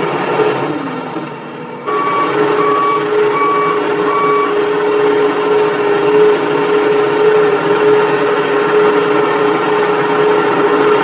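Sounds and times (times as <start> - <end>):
constant whine: 0.0 - 11.0
heavy engines running: 0.0 - 11.0
reversing alarm beep: 1.9 - 4.8.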